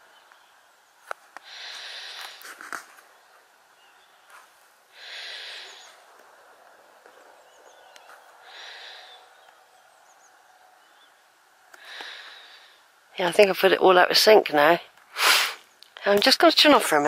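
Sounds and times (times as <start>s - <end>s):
person sniffing: 15.2s - 15.6s.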